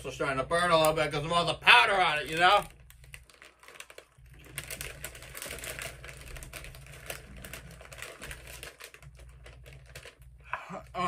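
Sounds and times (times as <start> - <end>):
chips crunching while chewed: 2.2 - 10.6.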